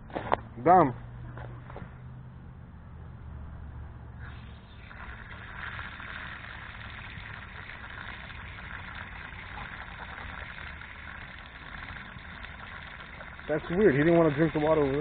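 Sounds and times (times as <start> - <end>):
low steady rumble: 0.0 - 15.0
water splashing onto grass: 4.8 - 15.0.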